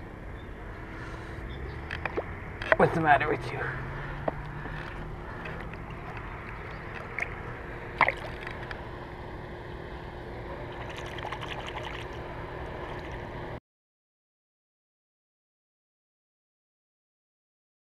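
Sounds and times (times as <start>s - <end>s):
fish splash: 8.0s - 8.5s.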